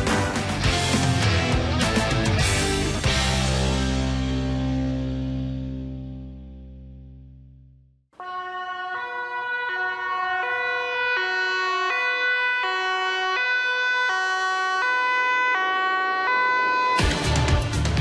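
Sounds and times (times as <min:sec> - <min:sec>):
ambulance two-tone siren: 0:08.2 - 0:17.8.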